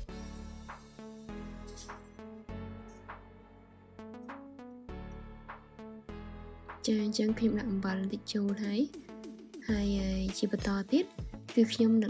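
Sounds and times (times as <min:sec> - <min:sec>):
instrumental background music: 0:00.0 - 0:12.0.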